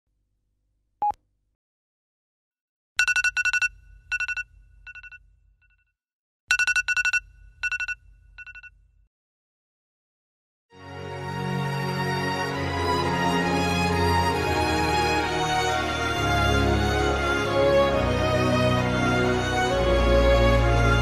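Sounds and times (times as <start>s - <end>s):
smartphone alarm beeping: 3.0s - 5.2s, 6.5s - 8.7s.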